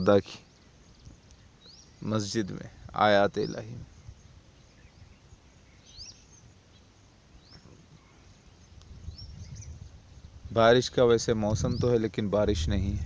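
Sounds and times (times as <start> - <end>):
high bird chirps: 3.3 - 10.6.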